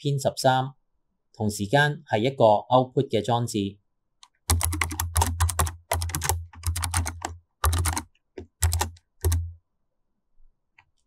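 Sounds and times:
computer keyboard typing: 0:04.2 - 0:09.6.

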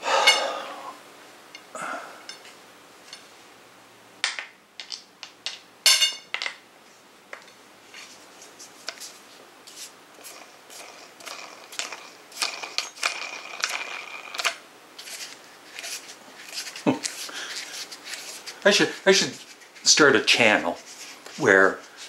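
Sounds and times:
metal parts clicking and knocking: 0:10.9 - 0:14.6.

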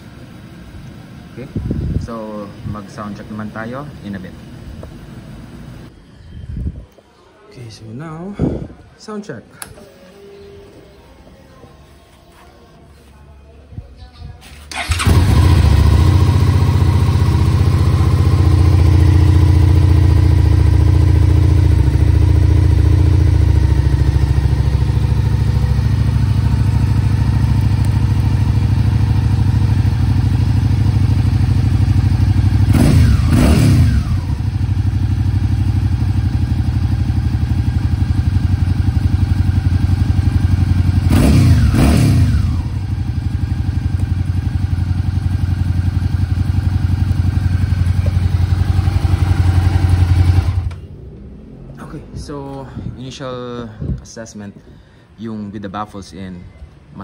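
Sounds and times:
motorcycle engine idling: 0:00.0 - 0:05.9, 0:14.7 - 0:51.0
throttle blips revving engine: 0:32.4 - 0:34.6, 0:41.0 - 0:42.9.

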